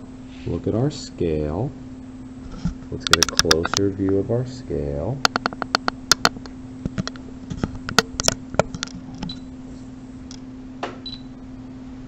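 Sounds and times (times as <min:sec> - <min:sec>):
steady low hum: 0:00.0 - 0:12.0
sharp small clicks and taps: 0:03.0 - 0:04.2, 0:05.2 - 0:09.4.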